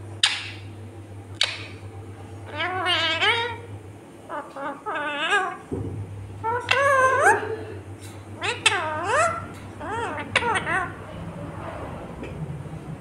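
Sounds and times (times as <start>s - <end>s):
parakeet warbling chatter: 2.4s - 3.7s, 4.3s - 5.7s, 6.4s - 7.6s, 8.4s - 11.1s.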